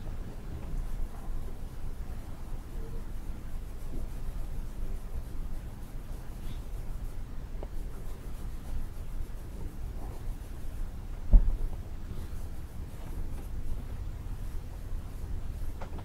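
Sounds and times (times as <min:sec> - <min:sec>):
soft rubbing and scraping: 0:00.0 - 0:16.0
low thump: 0:11.3 - 0:11.7.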